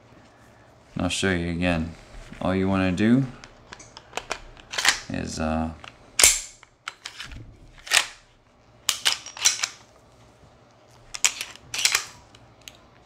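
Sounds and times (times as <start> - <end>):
pistol slide clicks and clacks: 3.7 - 5.1, 5.8 - 8.2, 8.9 - 9.9, 11.1 - 12.8.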